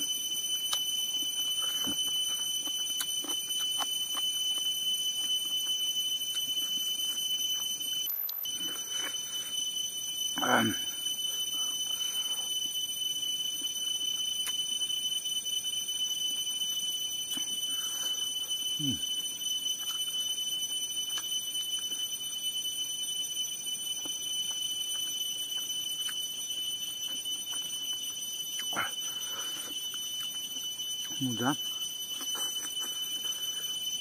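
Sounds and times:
mouth and eating sounds: 0.7 - 5.5
high-pitched whine: 17.4 - 19.0.

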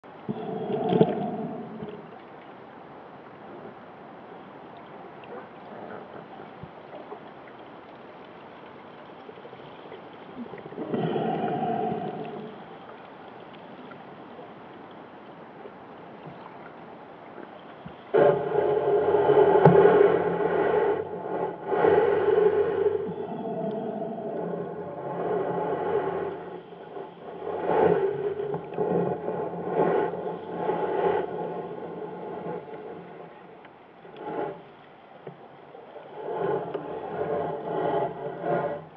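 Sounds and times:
underwater hiss: 0.3 - 2.1, 10.3 - 14.0, 17.7 - 33.3, 35.7 - 38.9.

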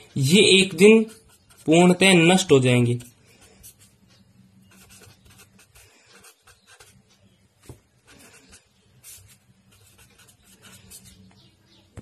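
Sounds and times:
low steady hum: 0.0 - 12.0
marker pen scratching on paper: 0.6 - 2.0, 3.0 - 4.0, 4.6 - 11.3.

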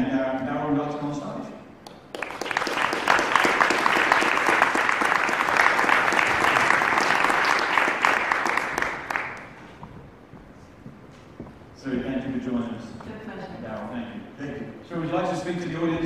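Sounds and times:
audience applauding: 1.9 - 9.8.

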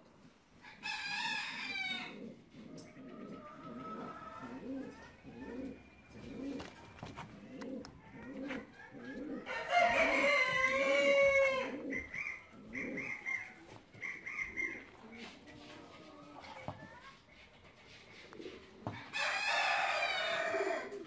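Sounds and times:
rooster crowing: 0.7 - 2.1, 3.4 - 4.8, 9.0 - 12.4, 19.0 - 21.0
pigeons cooing: 0.7 - 16.5, 18.1 - 21.0.

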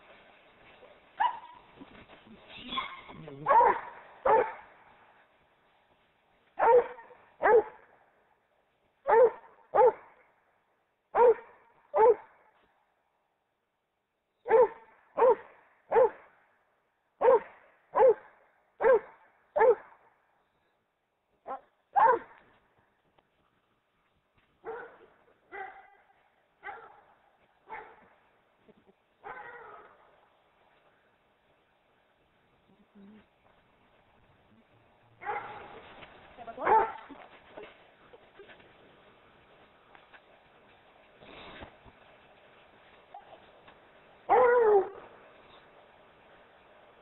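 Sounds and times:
dog barking: 1.2 - 1.6, 2.7 - 4.7, 6.6 - 7.8, 9.0 - 10.2, 11.2 - 12.3, 14.5 - 16.2, 17.2 - 20.0, 21.4 - 22.4, 24.6 - 27.1, 27.7 - 28.1, 29.2 - 30.0, 35.2 - 35.8, 36.6 - 37.2, 44.3 - 45.0.

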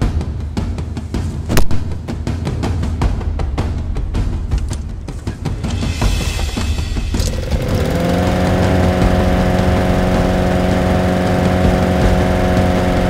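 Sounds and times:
lawn mower engine running: 5.1 - 13.0.

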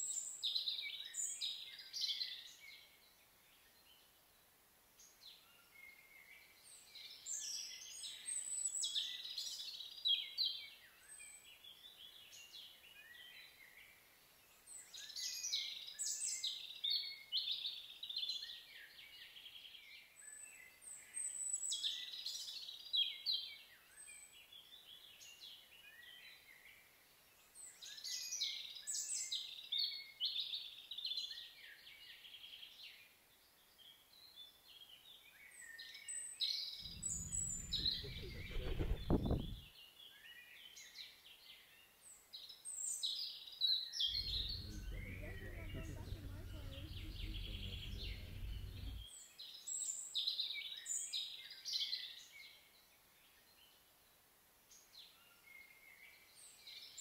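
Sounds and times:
songbirds singing: 36.6 - 39.7, 44.0 - 49.2
low rumble: 36.8 - 39.6, 44.1 - 49.1.

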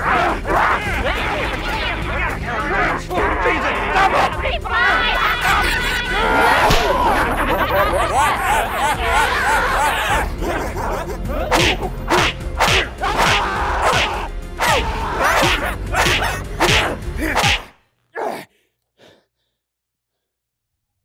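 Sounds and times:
whip-like whooshes and hits: 11.6 - 14.8, 15.4 - 17.7.

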